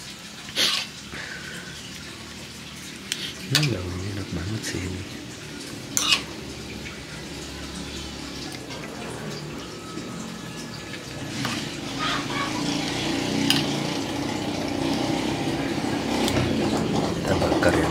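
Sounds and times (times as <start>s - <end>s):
metal spoon clinking and scraping: 5.9s - 6.4s, 13.4s - 13.8s.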